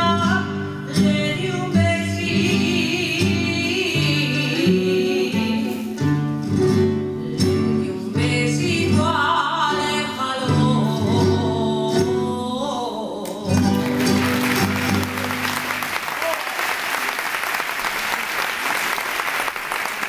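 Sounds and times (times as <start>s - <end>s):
woman singing with vibrato: 0.0s - 6.3s, 6.9s - 14.4s
string ensemble strumming chords: 13.3s - 16.0s.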